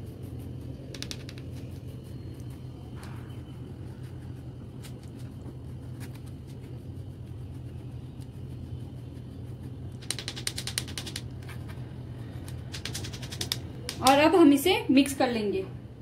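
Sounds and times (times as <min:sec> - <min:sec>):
low hum: 0:00.0 - 0:16.0
spatula scratching on sieve: 0:03.3 - 0:13.6
rapid rasping clicks: 0:09.9 - 0:11.5, 0:12.4 - 0:14.1.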